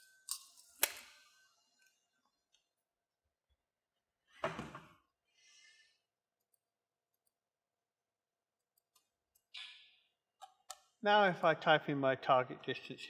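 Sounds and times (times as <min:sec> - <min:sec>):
thump of person sitting down: 0:04.4 - 0:04.9.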